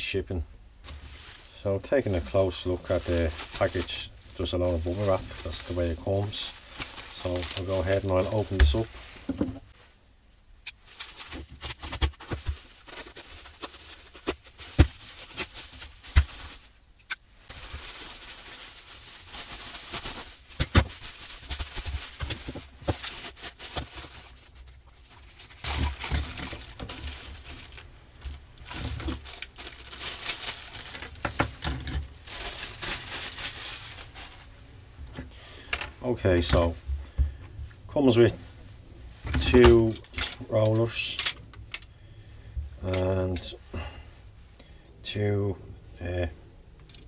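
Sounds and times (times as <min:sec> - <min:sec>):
bubble wrap crinkling: 0:00.8 - 0:09.2, 0:10.7 - 0:34.6.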